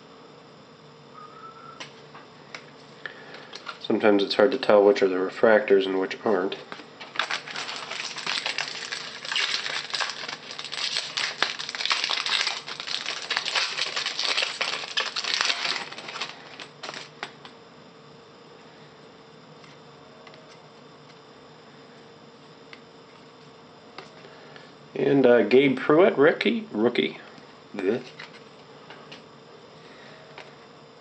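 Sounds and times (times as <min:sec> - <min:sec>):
foil wrapper crinkling and tearing: 0:07.0 - 0:17.4.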